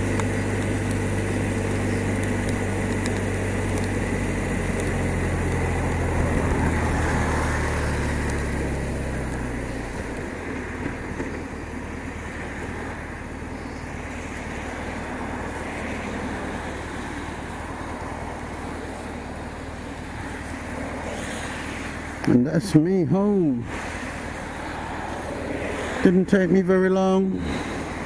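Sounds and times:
motorcycle engine under throttle: 0.0 - 26.2
tyres on wet road: 0.0 - 28.0
wind rush: 23.6 - 26.2.

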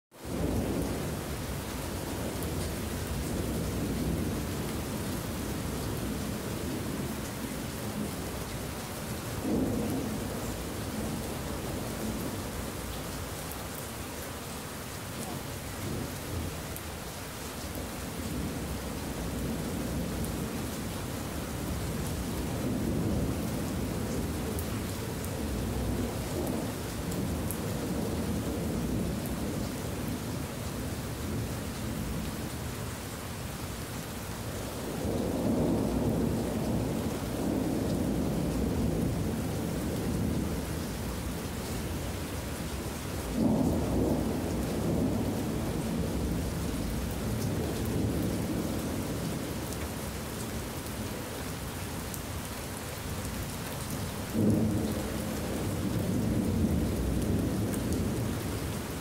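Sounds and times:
steady rain falling: 0.1 - 59.0
rolling thunder: 9.3 - 12.6, 34.9 - 41.3, 43.3 - 49.7, 54.3 - 59.0.

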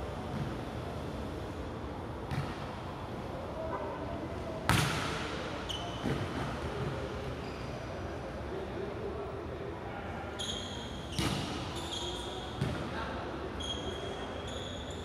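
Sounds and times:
high squeak: 10.4 - 11.2, 11.8 - 12.5, 13.6 - 15.0.

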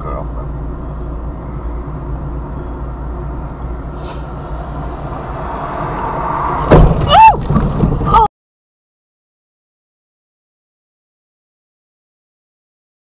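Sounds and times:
car cabin engine and road noise: 0.0 - 8.3
high-pitched rising and falling sound: 3.9 - 7.4
car collision bang: 5.0 - 8.2.

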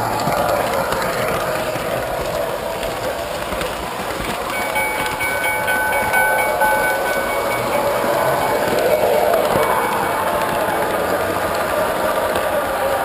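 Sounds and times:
model train wheels rumbling on rail: 0.0 - 13.0.

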